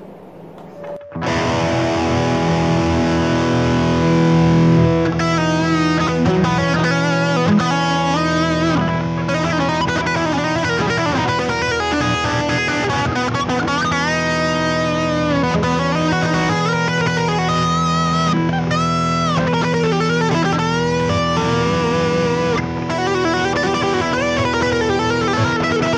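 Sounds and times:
electric guitar lead: 0.0 - 25.9
held guitar chord drone: 0.0 - 25.9.

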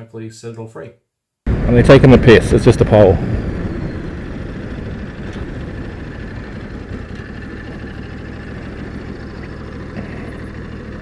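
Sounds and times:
motorcycle engine at low revs: 3.2 - 11.0
tyres rolling on gravel: 3.8 - 11.0.

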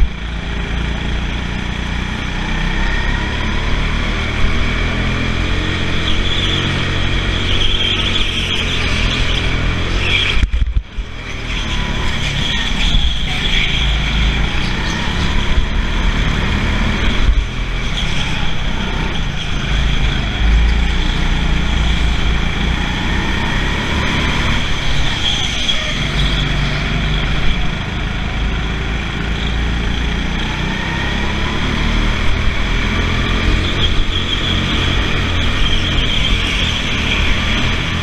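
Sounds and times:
go-kart engine racing: 0.0 - 38.0.

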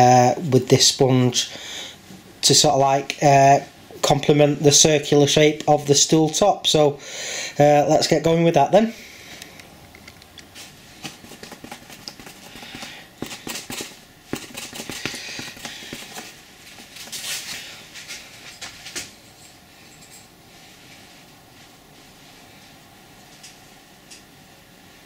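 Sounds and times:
cardboard rustling: 10.7 - 17.6
sponge dabbing paint on cardboard: 10.9 - 16.9.

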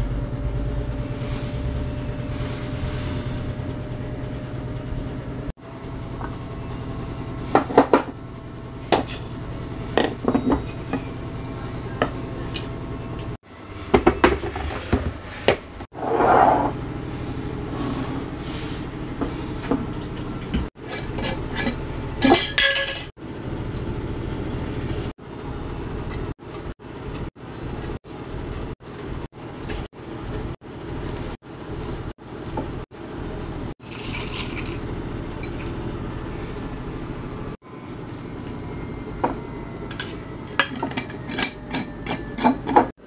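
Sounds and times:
steady low hum: 0.0 - 13.9, 15.4 - 42.9
glass jars clinking: 40.0 - 42.9.

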